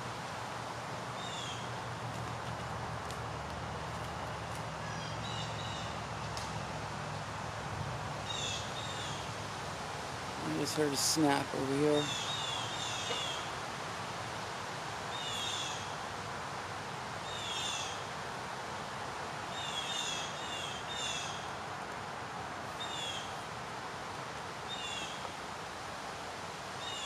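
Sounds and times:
forest background hiss: 0:00.0 - 0:27.0.

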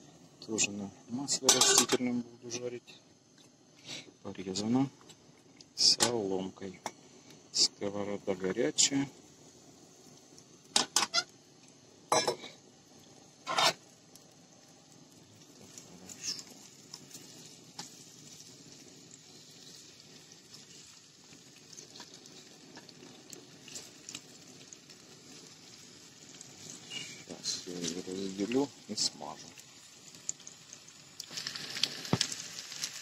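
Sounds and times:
oil sizzling in frying pan: 0:00.0 - 0:33.0.

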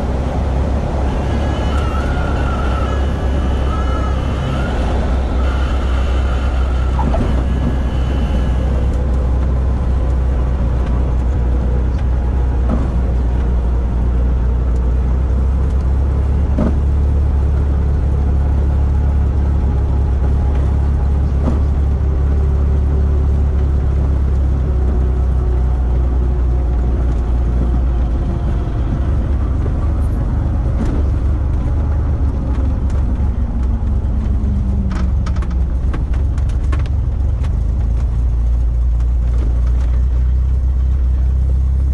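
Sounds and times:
faint tone dropping in pitch: 0:00.0 - 0:13.0
airplane engine and propeller idling: 0:00.0 - 0:41.9
wheels rumbling on runway: 0:00.0 - 0:41.9.

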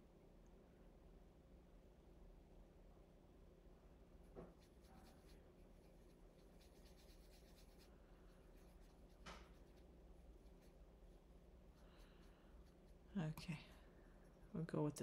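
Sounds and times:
paintbrush rubbing on paper: 0:04.4 - 0:13.2.

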